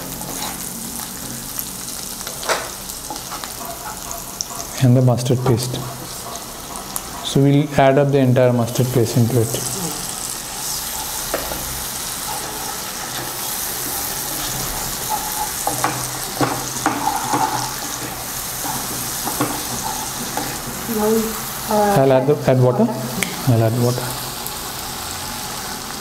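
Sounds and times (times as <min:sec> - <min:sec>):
paste sizzling in hot oil: 0:00.0 - 0:26.0
wooden spatula scraping pan: 0:00.1 - 0:00.7, 0:03.0 - 0:21.4.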